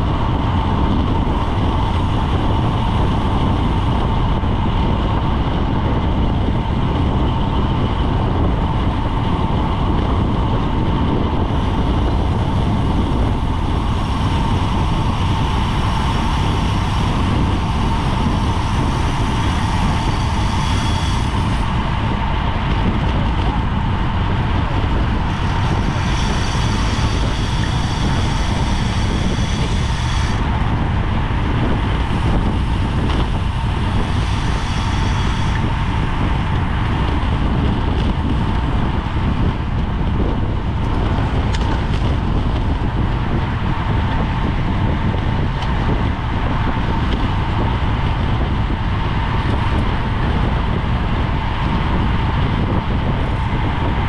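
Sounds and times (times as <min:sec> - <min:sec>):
thin steady hum: 0:00.0 - 0:54.0
wind roaring over microphone: 0:00.0 - 0:54.0
high-pitched buzz: 0:06.9 - 0:39.5.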